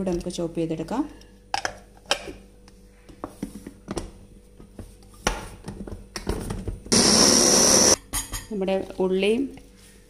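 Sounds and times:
food chopper motor starting: 6.9s - 8.0s.

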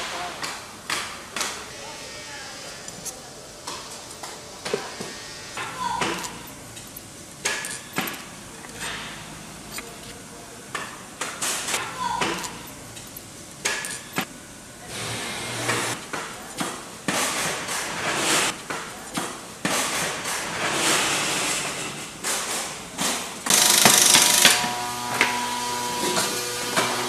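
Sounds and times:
loud hissing burst: 1.6s - 7.4s
machinery knocking and clattering: 15.6s - 25.4s.

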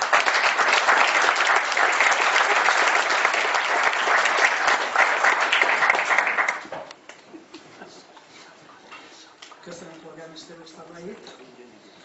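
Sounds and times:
audience applauding: 0.0s - 6.9s.

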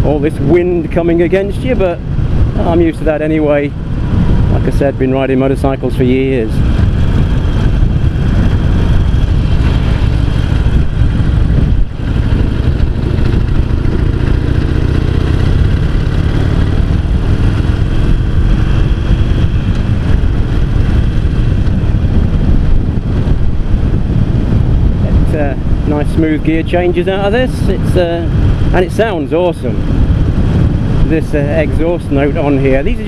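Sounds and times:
motorcycle engine exhaust note: 6.6s - 26.6s.

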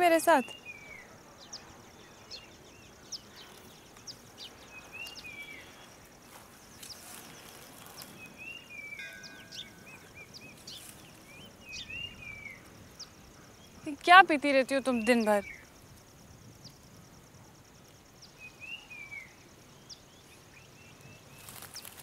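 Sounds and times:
high insect trill: 0.0s - 22.0s
bird chirps and whistled calls: 8.1s - 13.1s.

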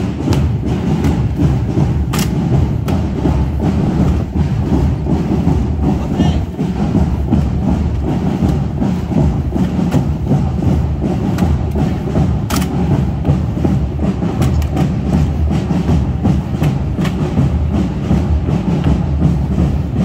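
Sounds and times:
rifles clacking: 0.0s - 4.2s, 11.1s - 13.4s, 14.3s - 15.0s, 16.5s - 17.4s.

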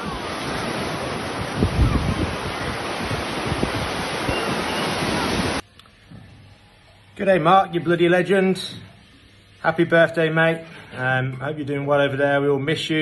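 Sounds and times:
ocean surf breaking: 0.0s - 5.6s
wind buffeting microphone: 0.0s - 5.6s.

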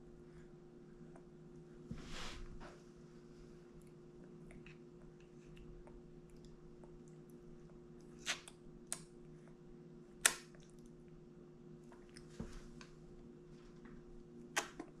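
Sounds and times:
low room hum: 0.0s - 15.0s
wet mouth smacks: 8.1s - 9.1s, 14.6s - 14.9s.

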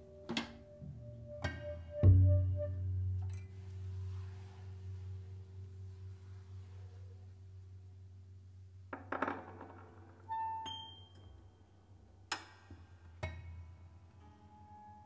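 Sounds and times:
clinks and knocks: 8.9s - 11.0s.

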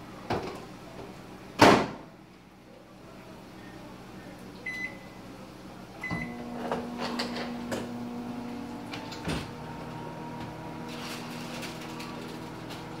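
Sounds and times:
oven humming: 4.2s - 13.0s.

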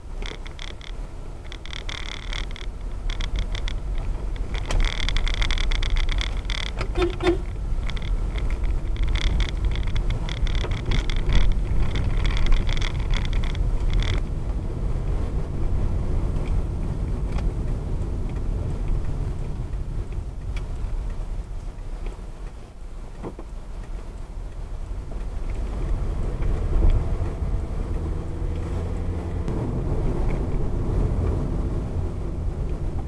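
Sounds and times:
car rattling on rough road: 0.0s - 33.0s
road and engine rumble: 0.0s - 33.0s.

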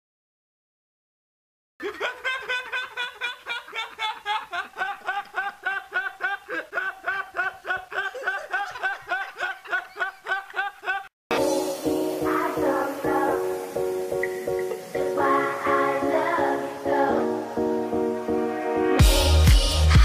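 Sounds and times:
young man laughing: 1.8s - 11.1s.

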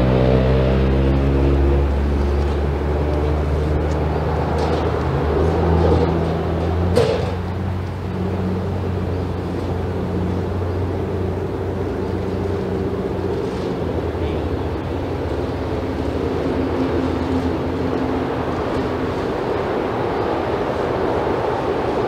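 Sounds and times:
low motor drone: 0.0s - 22.0s.

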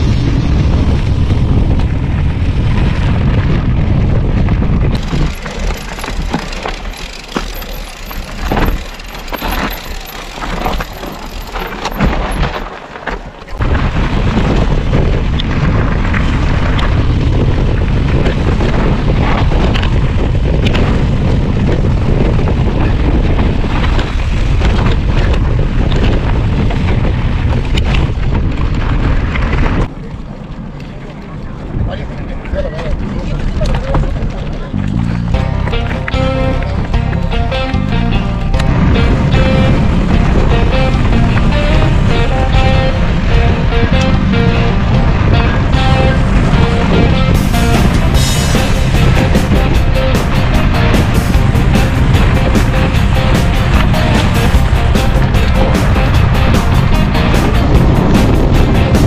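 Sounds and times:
bike tyres crunching on gravel: 0.0s - 31.5s
wind buffeting microphone: 0.0s - 59.0s
bike clicks and knocks: 4.8s - 13.6s.

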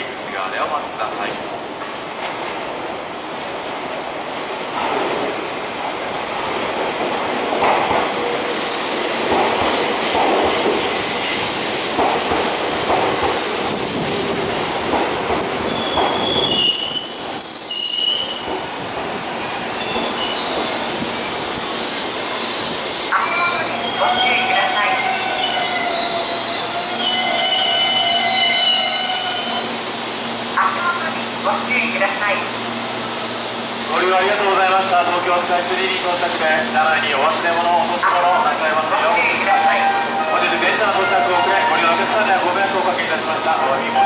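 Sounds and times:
train wheels rumbling on rails: 1.8s - 44.0s
high-pitched brake squeals: 15.7s - 18.5s, 19.8s - 20.6s, 23.2s - 29.8s.

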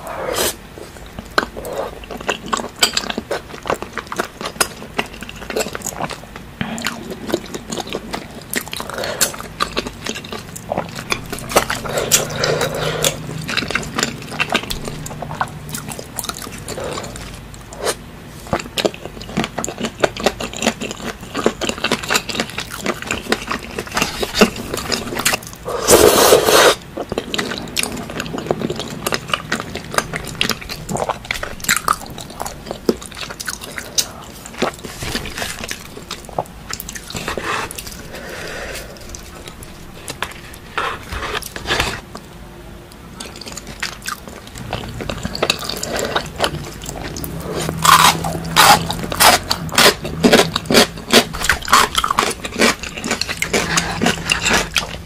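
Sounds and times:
people chewing and smacking food: 0.0s - 55.0s
breathy burst: 37.4s - 39.2s.

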